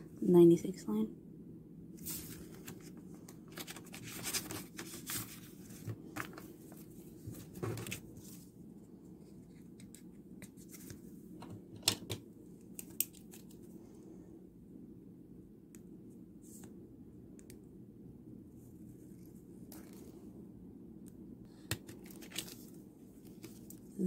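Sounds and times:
paper envelopes rustling: 2.0s - 8.5s, 21.7s - 24.0s.

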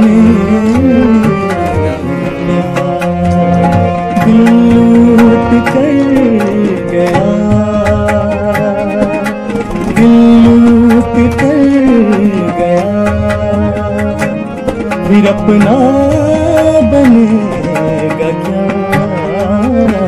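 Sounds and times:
harmonium holding notes: 0.0s - 20.0s
sliding melody line: 0.0s - 20.0s
tabla strokes: 0.0s - 20.0s.

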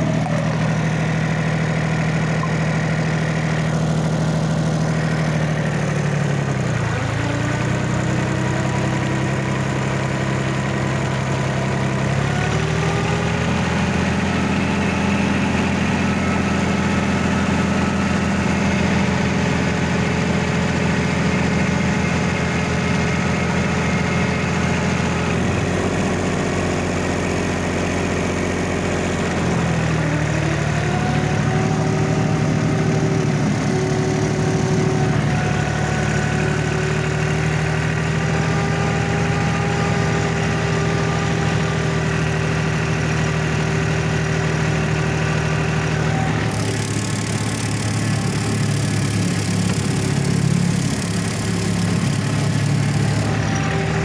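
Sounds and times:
tractor diesel engine under load: 0.0s - 54.0s
flail mulcher cutting grass: 43.8s - 54.0s.

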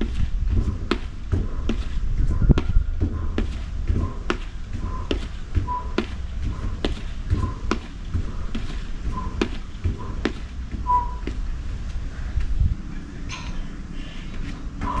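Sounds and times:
whistle-like chirps: 10.9s - 11.2s.

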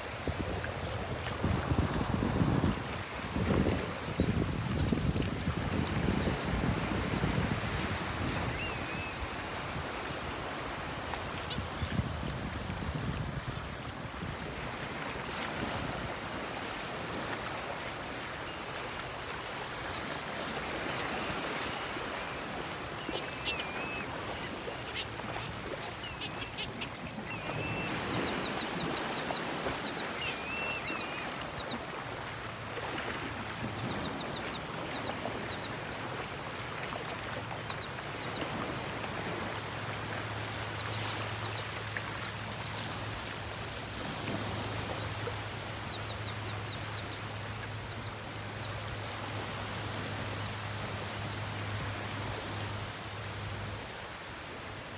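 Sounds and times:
surf: 0.0s - 54.9s
wind: 0.0s - 54.9s
seabirds calling: 18.0s - 32.1s.

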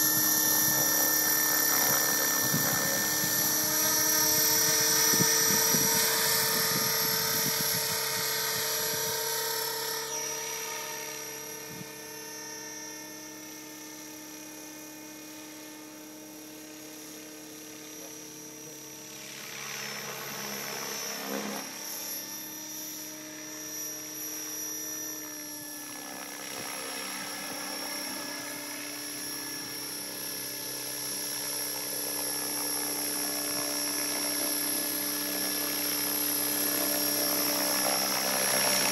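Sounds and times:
model helicopter motor whine: 0.0s - 38.9s.

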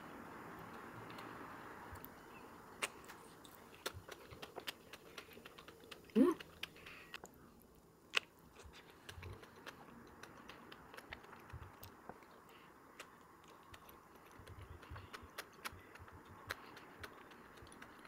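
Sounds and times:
faint steady hiss: 0.0s - 18.0s.

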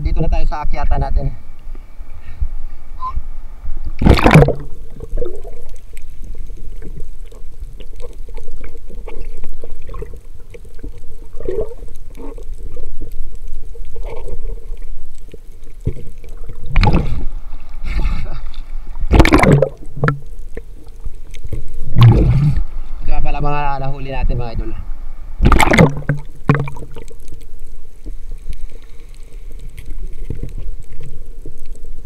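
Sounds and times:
water sloshing and gurgling: 3.6s - 32.0s
water splashes: 3.9s - 32.0s
crackling clicks: 4.0s - 22.7s, 25.4s - 32.0s.

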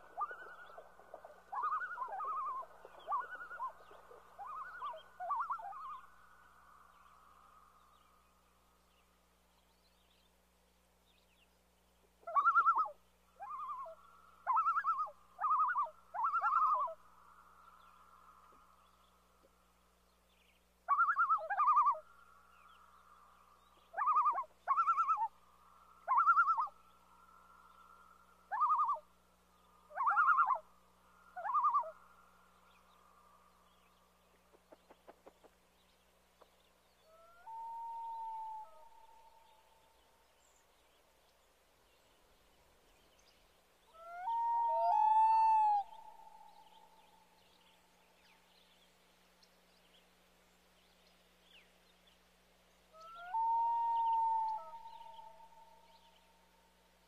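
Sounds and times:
loons calling: 0.0s - 7.8s, 12.2s - 18.8s, 20.8s - 33.8s, 37.0s - 40.7s, 43.8s - 48.4s, 52.9s - 56.5s.

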